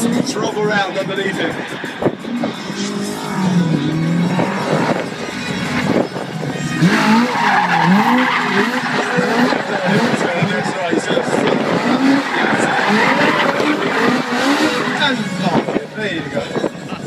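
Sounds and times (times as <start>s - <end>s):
car engine revving: 0.0s - 16.9s
tyre squeal: 6.9s - 10.8s, 11.4s - 15.3s.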